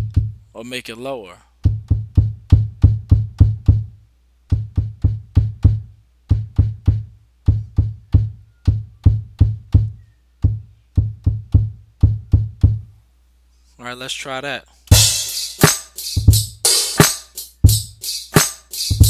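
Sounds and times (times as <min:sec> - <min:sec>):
filtered kick drum hits: 0:00.0 - 0:00.4, 0:01.6 - 0:03.9, 0:04.5 - 0:12.9, 0:14.9 - 0:19.0.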